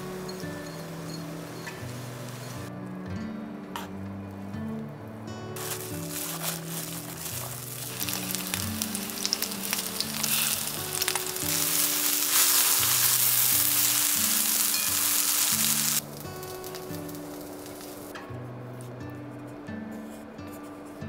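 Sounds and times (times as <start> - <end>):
food sizzling in a pan: 0.0 - 2.7, 5.6 - 18.2
oil popping: 5.6 - 18.1.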